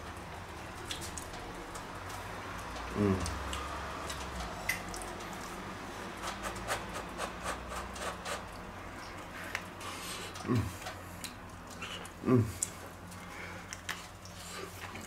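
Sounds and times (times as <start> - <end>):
person murmuring: 2.9 - 3.4, 10.4 - 10.9, 12.2 - 12.7.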